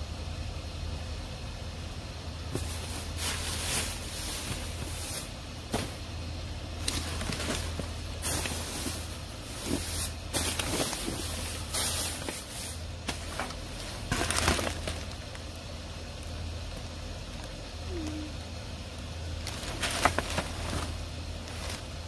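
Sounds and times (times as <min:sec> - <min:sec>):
steady low hum: 0:00.0 - 0:22.0
plastic bags rustling and crinkling: 0:02.5 - 0:15.6, 0:19.4 - 0:22.0.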